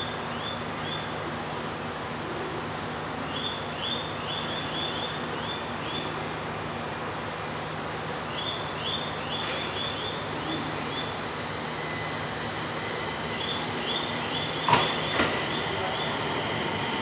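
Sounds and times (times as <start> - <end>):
electric train humming: 4.8 - 17.0.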